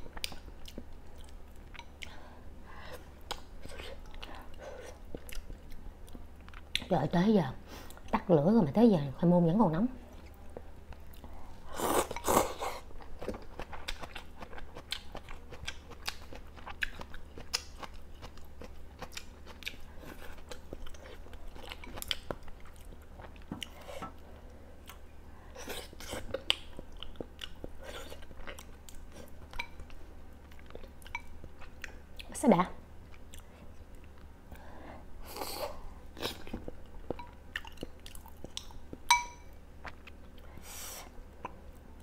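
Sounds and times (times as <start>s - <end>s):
wet chewing with mouth clicks: 3.0s - 6.9s, 10.1s - 32.3s, 36.2s - 39.2s.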